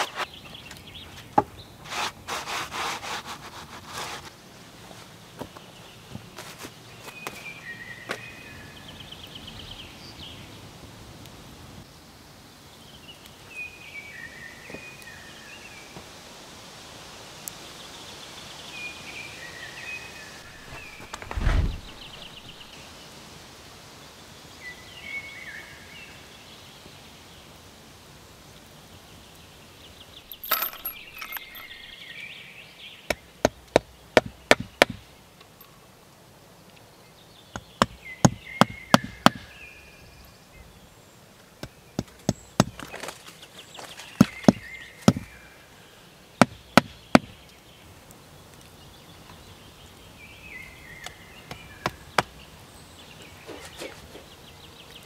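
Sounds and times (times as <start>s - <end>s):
hatchet striking wood: 33.1s - 35.0s, 37.6s - 39.5s, 44.2s - 45.3s, 46.4s - 47.4s.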